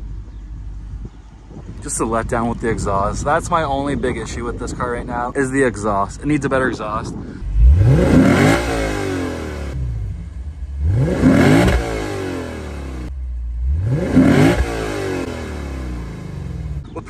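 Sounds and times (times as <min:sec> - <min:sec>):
car engine revving: 0:07.4 - 0:17.0.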